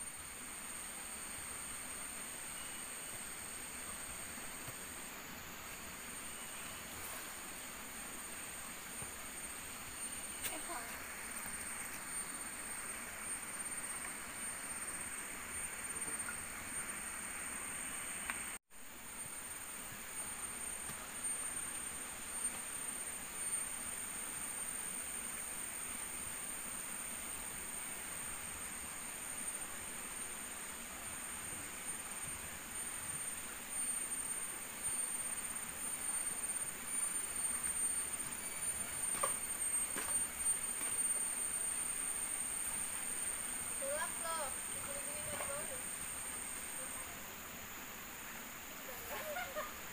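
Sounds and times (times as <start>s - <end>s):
even hiss: 0.0s - 49.9s
forest stream flowing: 0.0s - 49.9s
high-pitched insect drone: 19.1s - 49.9s.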